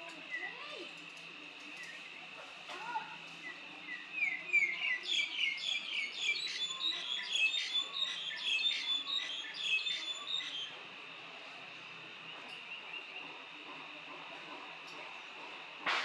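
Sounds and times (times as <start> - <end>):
high-pitched background hum: 0.0 - 16.0
bird singing chirps and whistles: 3.4 - 10.8.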